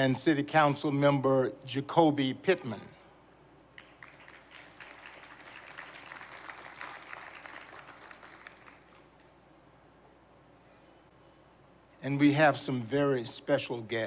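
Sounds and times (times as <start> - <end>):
audience applauding: 3.8 - 9.3.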